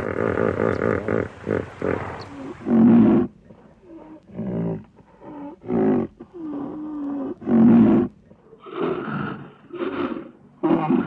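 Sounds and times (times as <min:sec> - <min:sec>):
koala droning call: 0:00.0 - 0:03.1
koala bellowing: 0:00.0 - 0:11.0.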